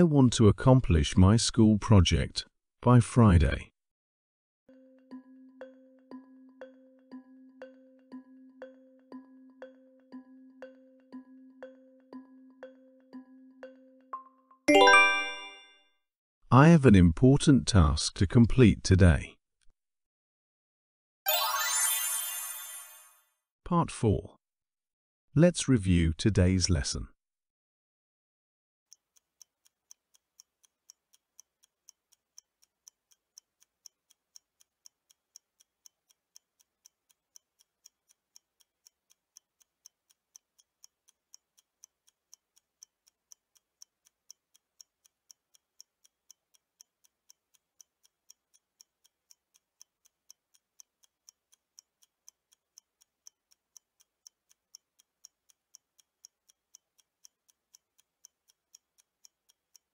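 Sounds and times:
faint clock ticking: 4.7 - 14.3, 28.9 - 59.9.

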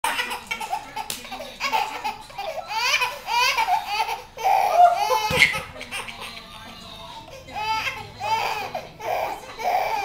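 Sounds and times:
baby laughing: 0.1 - 10.0.

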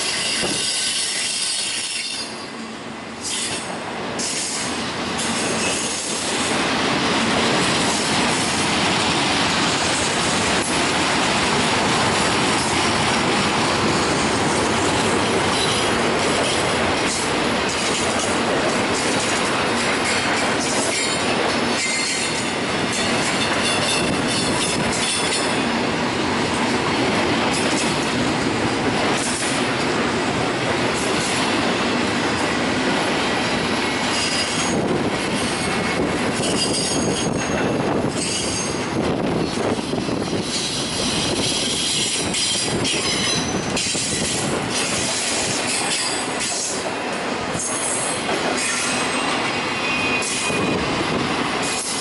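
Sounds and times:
clickety-clack over rail joints: 0.0 - 52.0
freight train wheels rumbling: 0.0 - 52.0
high wheel squeal: 0.1 - 2.6, 39.9 - 44.4, 48.6 - 50.9.

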